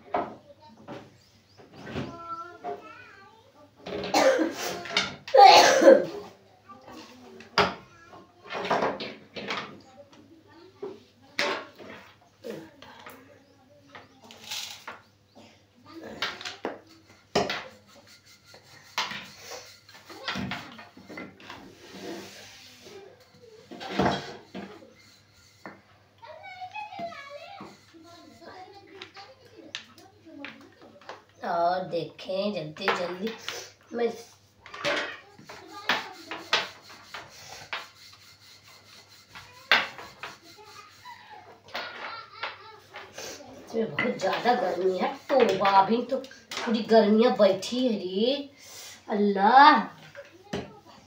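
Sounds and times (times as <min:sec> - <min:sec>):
utensils scraping and rattling: 0:13.9 - 0:15.1, 0:15.9 - 0:51.0
flatbread rubbed on griddle: 0:16.8 - 0:28.9, 0:35.3 - 0:41.4, 0:42.3 - 0:46.2.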